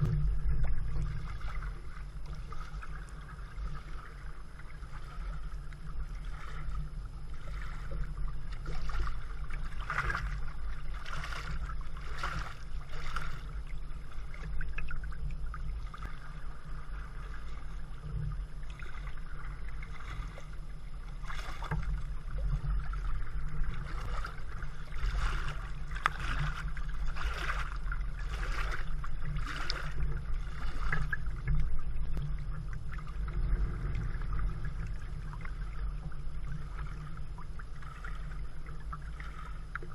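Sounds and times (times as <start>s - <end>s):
steady low rumble: 0.0s - 39.9s
water lapping against hull: 0.0s - 39.9s
paddle strokes splashing: 0.7s - 15.0s, 18.6s - 35.8s.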